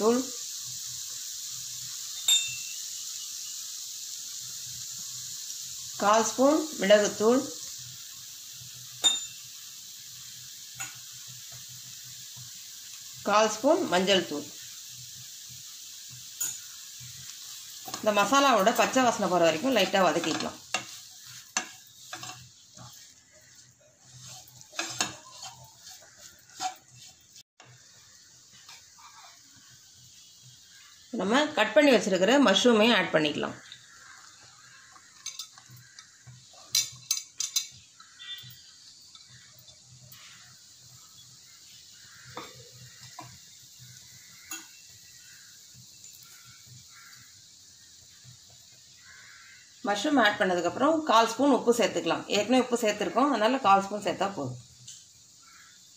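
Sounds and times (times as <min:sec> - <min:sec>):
faint sizzle: 0:00.0 - 0:55.9
spatula scraping paste in a pan: 0:19.8 - 0:27.4, 0:28.5 - 0:29.7.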